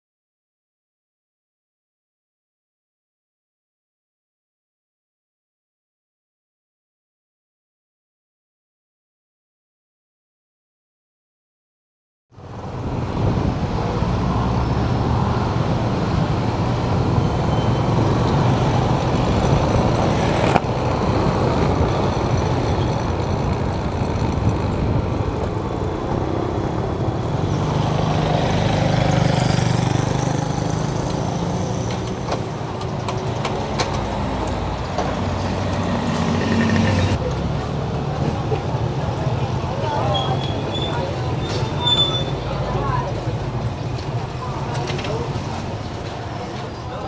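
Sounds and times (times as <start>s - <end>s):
traffic: 12.3s - 47.0s
motorcycle engine hum: 14.6s - 47.0s.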